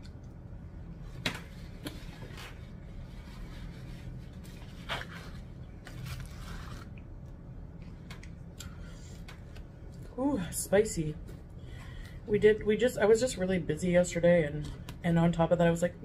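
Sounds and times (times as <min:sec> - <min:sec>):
foil wrapper crinkling: 0:05.8 - 0:07.0.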